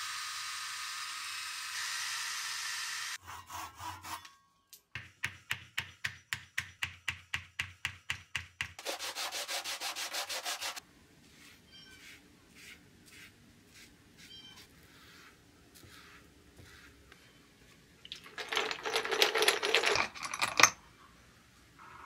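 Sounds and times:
foam brush strokes on wood: 8.8 - 17.4
metal screws clattering in plastic tub: 18.1 - 20.8.

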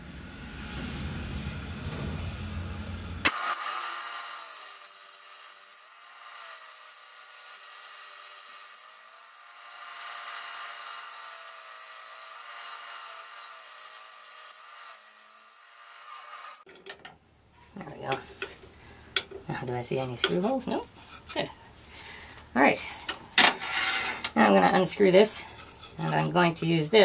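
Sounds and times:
lathe tool hissing cut on wood: 3.2 - 16.6.

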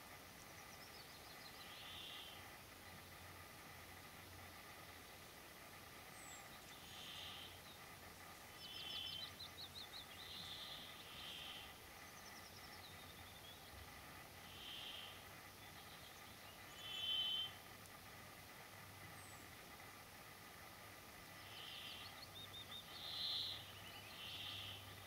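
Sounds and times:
bird singing: 0.0 - 3.1, 5.9 - 17.7, 18.9 - 19.7, 21.2 - 25.0
background hiss: 0.0 - 25.0.

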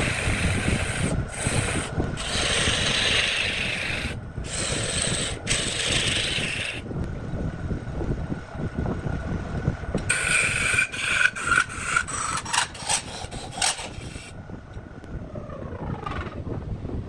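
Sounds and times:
tool scraping spinning wood: 0.0 - 6.8, 10.0 - 14.3
wood lathe humming and whining: 0.0 - 6.8, 10.0 - 14.3.

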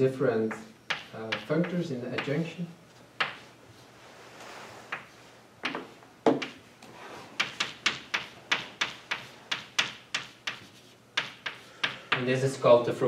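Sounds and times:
chalk tapping on blackboard: 0.5 - 2.4, 3.2 - 3.5, 4.9 - 6.6, 7.4 - 12.3
chalk scraping on blackboard: 7.0 - 12.0.

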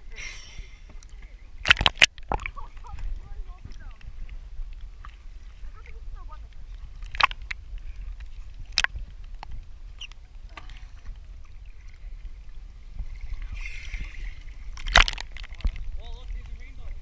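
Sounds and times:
seawater sloshing and lapping: 0.0 - 17.0
sharp water splashes: 1.6 - 3.9, 5.6 - 7.6, 12.9 - 16.7.

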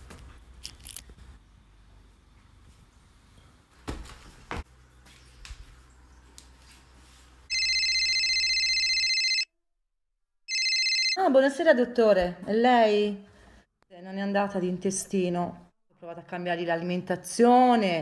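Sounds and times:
smartphone ringing: 7.5 - 9.5, 10.5 - 11.2.

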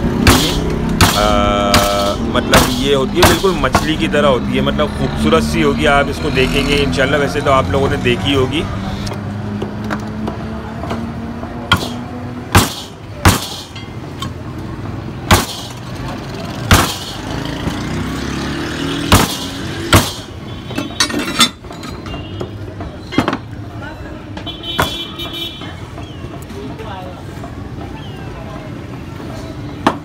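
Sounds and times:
cleaver chopping on wooden block: 0.2 - 3.9, 11.7 - 13.8, 19.1 - 20.3.

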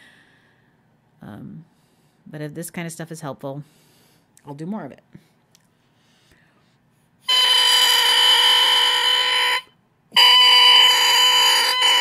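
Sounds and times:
person speaking: 4.4 - 5.3.

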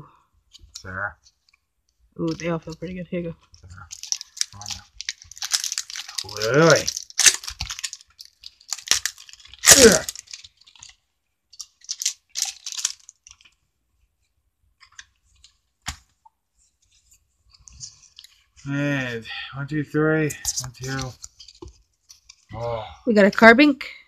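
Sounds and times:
foil wrappers crinkling and tearing: 2.2 - 13.6, 20.4 - 22.5.

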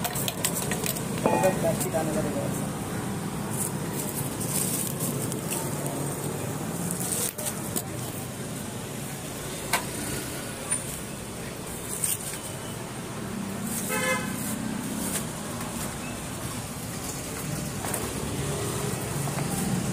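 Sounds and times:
street traffic: 0.0 - 19.9
bubble wrap clicks and rustles: 3.4 - 8.2
vehicle horn toot: 13.8 - 14.4.

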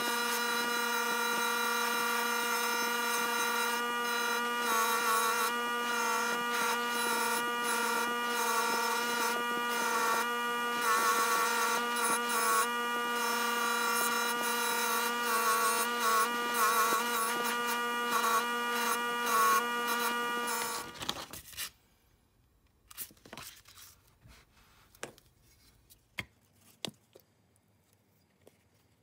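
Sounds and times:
bench grinder humming: 0.0 - 21.3.

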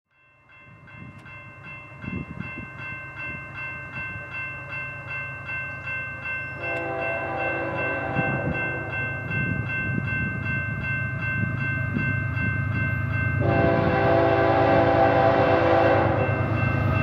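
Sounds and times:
crossing bell dinging: 0.1 - 17.0
diesel locomotive engine rumble: 2.0 - 17.0
locomotive air horn blast: 6.6 - 8.6, 13.4 - 16.3.

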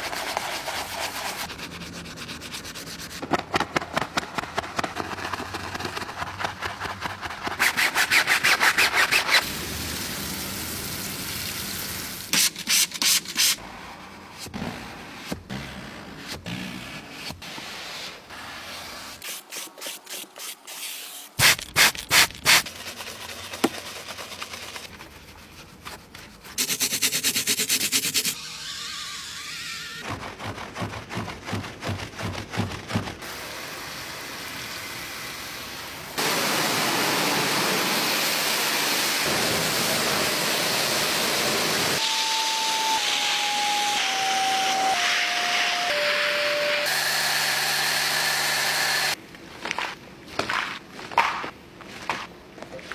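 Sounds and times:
brushing foam on grille: 0.0 - 3.2.

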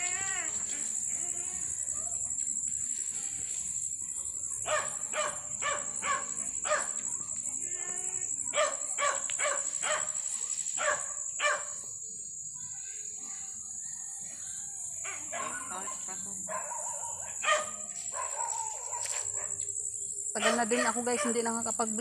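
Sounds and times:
high insect buzz: 0.0 - 13.4
dog barking: 4.7 - 7.0, 8.5 - 10.2, 10.8 - 11.8, 15.1 - 19.6, 20.4 - 21.4.

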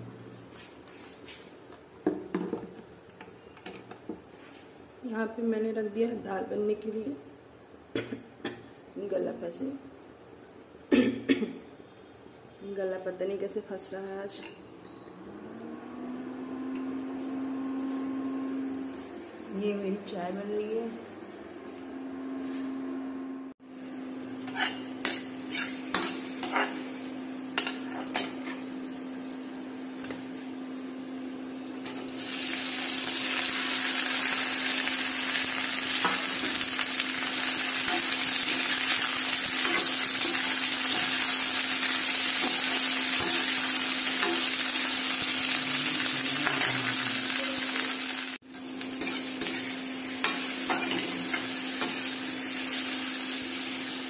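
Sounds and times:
vegetables sizzling in pan: 23.8 - 31.0, 31.8 - 54.0.

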